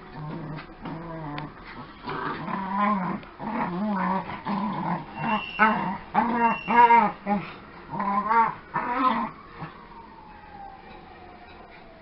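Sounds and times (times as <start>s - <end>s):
small dogs growling: 0.1s - 9.7s
dog whines: 4.9s - 7.2s.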